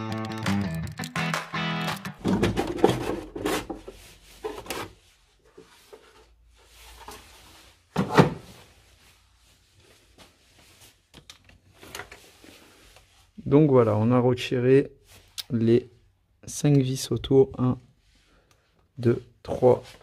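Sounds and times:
plastic parts knocking and rubbing: 0:01.9 - 0:06.4.

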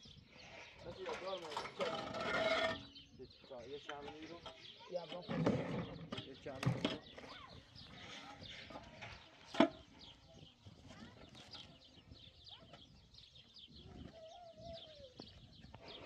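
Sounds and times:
small birds chirping: 0:00.0 - 0:16.0
concrete blocks set down: 0:05.1 - 0:07.2.

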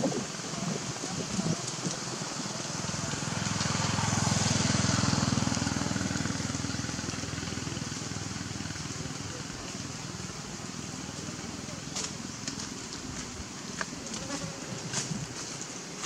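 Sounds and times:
outdoor hiss: 0:00.0 - 0:16.0
vehicle engine passing by: 0:02.1 - 0:13.6.

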